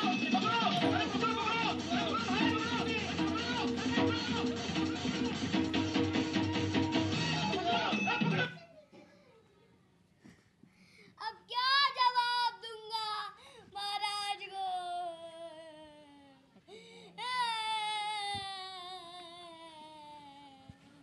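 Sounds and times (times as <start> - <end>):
child wailing: 17.2 - 21.0.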